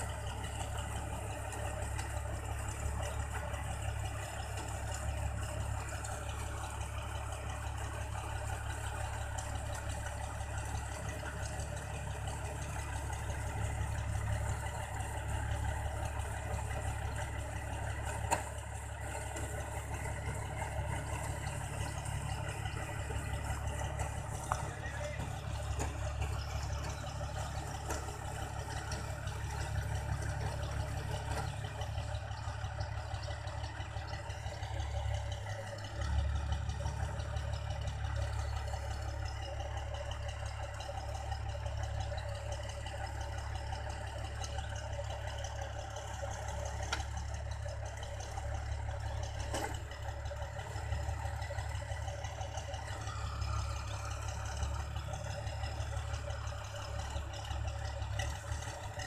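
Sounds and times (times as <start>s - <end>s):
combine harvester diesel engine: 0.0s - 59.0s
unloading auger working: 17.8s - 32.2s, 45.7s - 59.0s.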